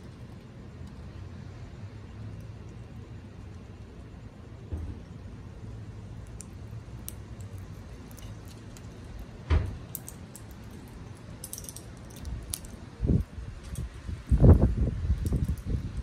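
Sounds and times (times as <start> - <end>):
low steady rumble: 0.0 - 16.0
thump: 4.7 - 5.0, 9.5 - 9.8.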